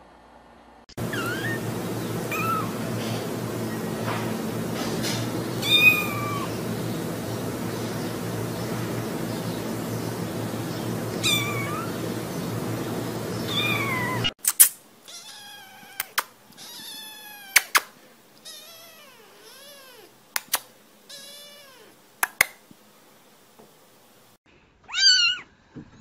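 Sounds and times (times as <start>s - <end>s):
kittens meowing: 1.0s - 3.9s, 5.6s - 6.7s, 11.2s - 12.0s, 13.5s - 14.3s, 15.1s - 17.8s, 18.4s - 20.1s, 21.1s - 22.0s, 24.9s - 25.5s
sharp clicks: 14.4s - 14.8s, 20.4s - 20.7s, 22.2s - 22.6s.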